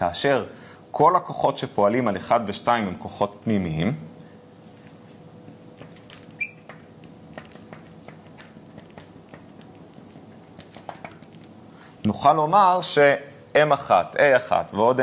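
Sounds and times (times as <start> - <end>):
marker squeaking on glass: 6.3 - 6.9.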